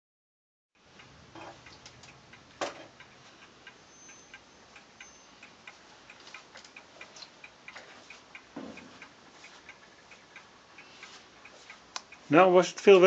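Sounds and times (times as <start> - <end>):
steady ticking: 0.8 - 13.0
sharp knock: 8.6 - 8.9.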